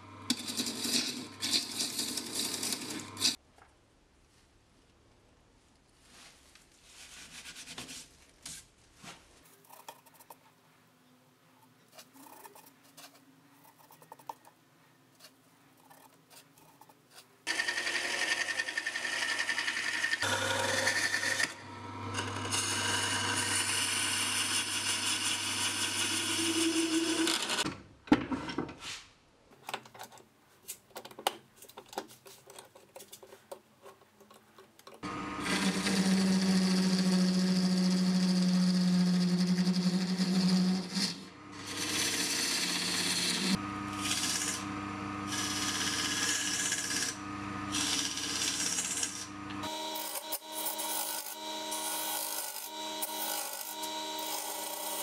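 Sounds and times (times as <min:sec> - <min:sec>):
turning tool cutting wood: 0:00.3 - 0:03.4, 0:17.4 - 0:27.6, 0:35.0 - 0:55.0
wood lathe motor hum: 0:17.5 - 0:27.6, 0:35.0 - 0:55.0
handling clicks and rustles: 0:29.5 - 0:35.0.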